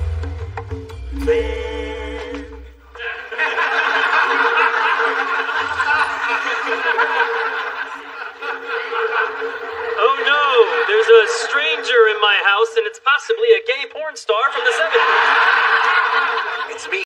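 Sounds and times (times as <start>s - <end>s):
sitcom transition music: 0.0s - 3.0s
studio audience laughing: 3.0s - 12.5s, 14.4s - 17.0s.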